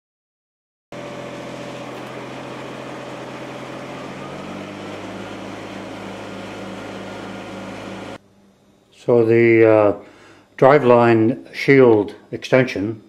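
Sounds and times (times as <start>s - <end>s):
tractor diesel engine running: 1.0s - 8.2s.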